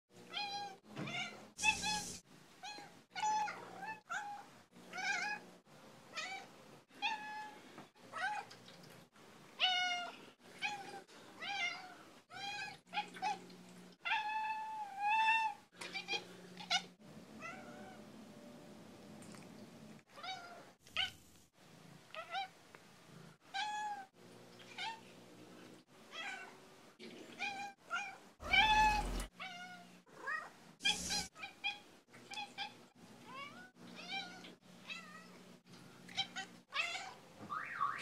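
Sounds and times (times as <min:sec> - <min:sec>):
cat meowing: 0:27.4 - 0:35.3.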